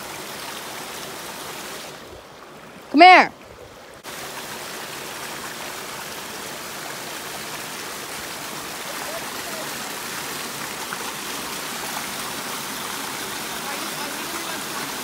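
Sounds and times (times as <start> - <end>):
waterfall rushing and splashing: 0.0 - 3.2, 4.0 - 15.0.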